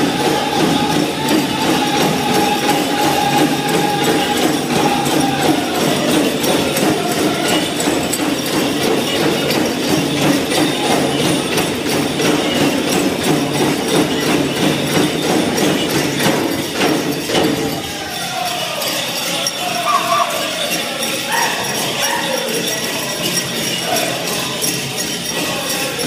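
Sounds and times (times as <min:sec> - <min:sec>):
big drum steady beat: 0:00.0 - 0:18.8
dancers' bells jingling: 0:00.0 - 0:26.0
group singing: 0:00.0 - 0:26.0.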